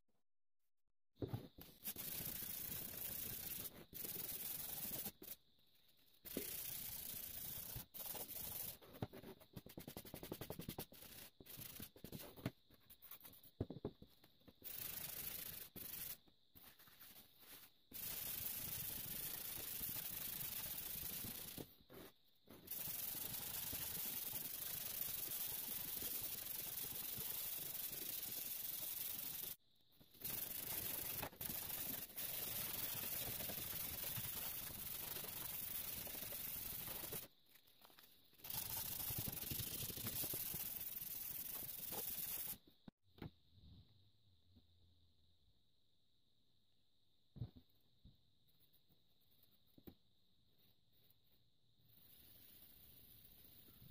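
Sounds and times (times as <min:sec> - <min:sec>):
paper towel wiping blade: 0:01.6 - 0:05.4, 0:06.3 - 0:13.4, 0:14.5 - 0:37.3, 0:38.4 - 0:42.6
sandpaper rubbing on metal: 0:01.8 - 0:05.4, 0:06.3 - 0:09.0, 0:14.6 - 0:21.7, 0:22.7 - 0:29.6, 0:30.2 - 0:37.3, 0:38.4 - 0:42.6.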